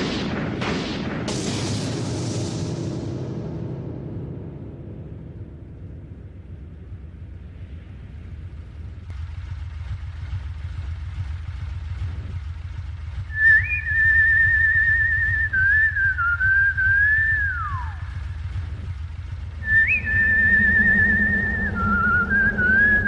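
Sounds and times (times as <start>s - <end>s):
steady low rumble: 0.0s - 23.0s
person whistling a tune: 13.3s - 18.0s, 19.6s - 23.0s.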